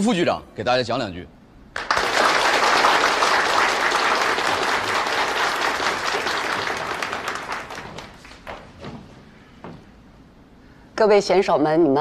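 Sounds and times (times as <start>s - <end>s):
audience applauding: 1.7s - 8.9s.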